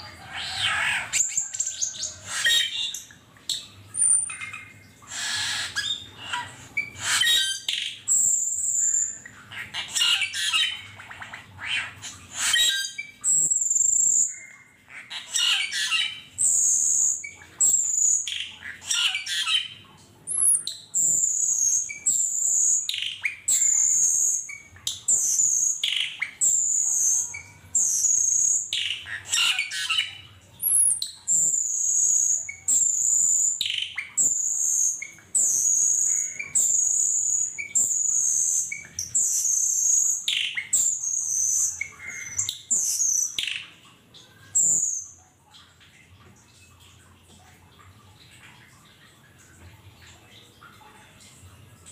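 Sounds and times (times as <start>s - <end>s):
starlings chirping: 20.3s - 43.7s.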